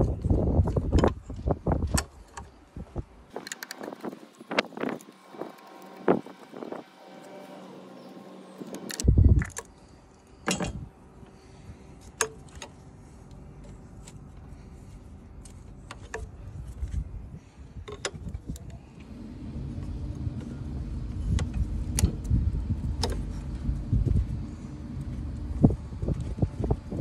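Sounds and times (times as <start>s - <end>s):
low rumble: 19.0s - 27.0s.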